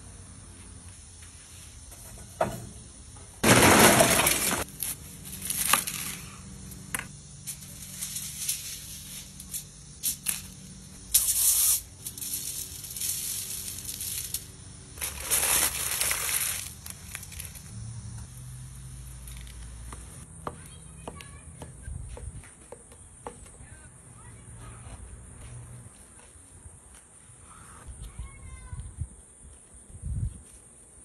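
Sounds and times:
aluminium foil crinkling: 4.1 - 6.4, 11.2 - 17.7.

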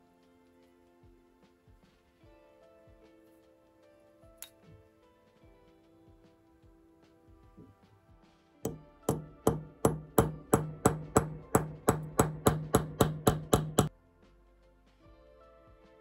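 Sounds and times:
hammer striking metal punch: 8.7 - 13.9.

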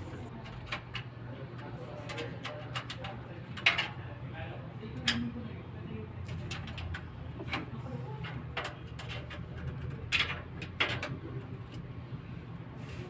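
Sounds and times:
steady low hum: 0.0 - 0.8.

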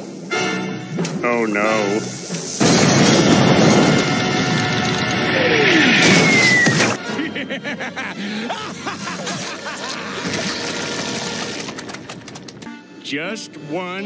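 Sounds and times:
background music: 0.0 - 9.1, 10.7 - 14.0
cartoon explosion rumble: 2.6 - 7.0
cartoon sound effects: 3.9 - 7.2
falling whistling tones: 5.1 - 7.1.

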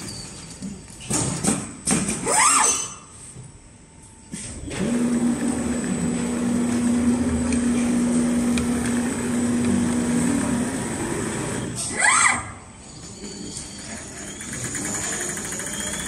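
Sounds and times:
sewing machine motor hum: 4.7 - 11.6, 14.1 - 16.0.

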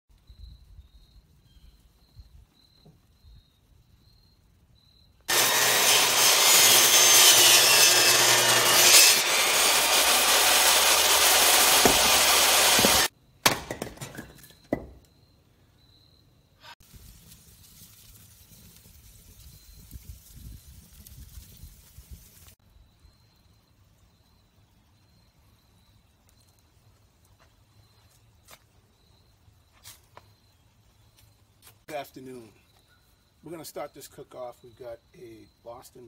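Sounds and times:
table saw cutting log: 5.3 - 13.1
hatchet splitting wood: 5.3 - 15.1.

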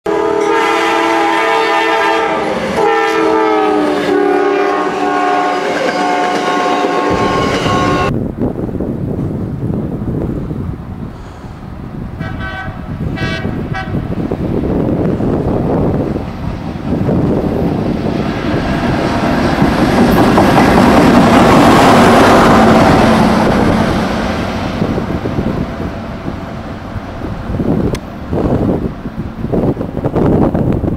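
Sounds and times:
train air horn blasts: 0.1 - 8.1, 12.2 - 14.0
rail vehicle passing: 0.1 - 30.9
train wheels clacking over rails: 16.1 - 28.8.

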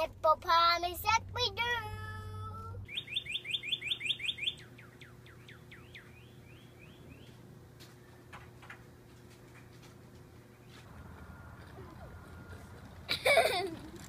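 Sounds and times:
bird singing whistled notes: 2.8 - 7.4.

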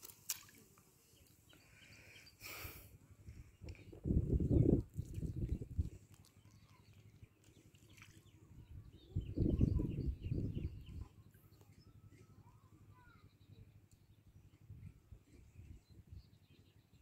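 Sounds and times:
small birds chirping: 0.3 - 17.0
wind buffeting microphone: 3.3 - 6.0, 8.5 - 11.1.

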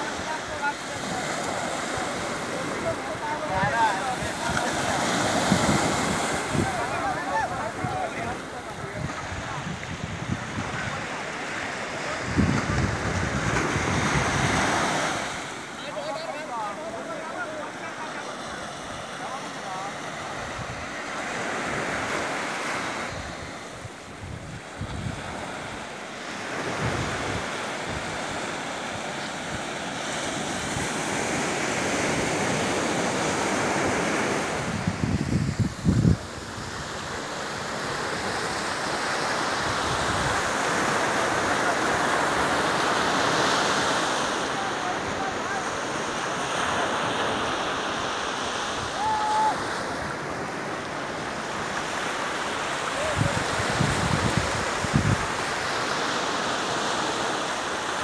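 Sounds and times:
surf breaking on beach: 0.0 - 58.0
wind buffeting microphone: 5.4 - 11.2, 12.2 - 15.0, 23.1 - 25.5, 34.5 - 37.0, 53.0 - 55.5.

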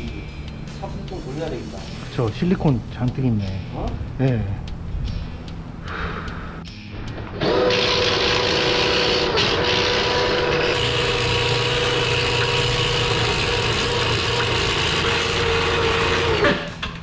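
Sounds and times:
drain-cleaning machine running: 7.2 - 17.0.

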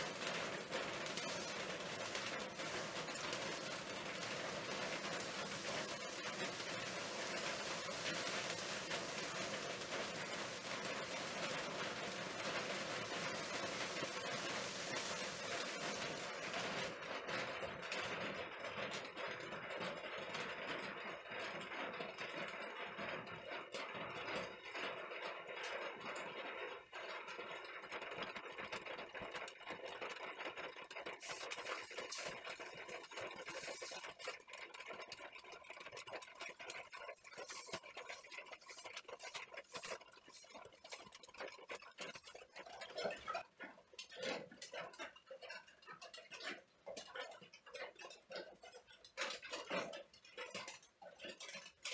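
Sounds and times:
hot blade sizzling in water: 0.0 - 17.0, 31.1 - 43.4.

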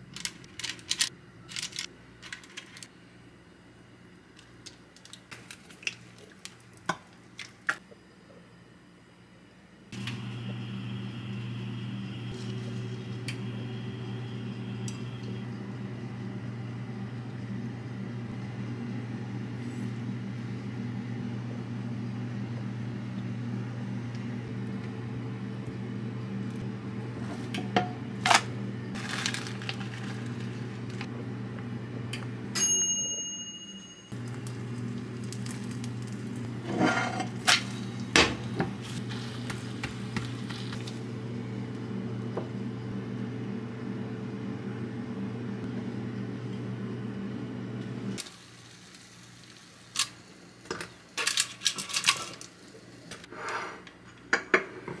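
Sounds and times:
appliance electrical hum: 0.0 - 55.0.

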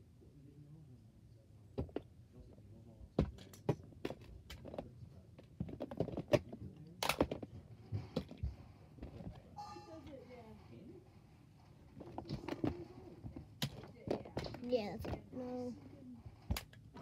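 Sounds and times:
toys clicking and knocking: 5.4 - 9.4, 12.0 - 15.3.

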